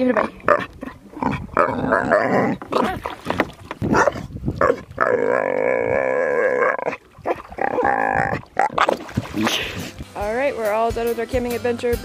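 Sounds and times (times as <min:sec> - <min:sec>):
dog splashing in water: 0:08.5 - 0:10.0.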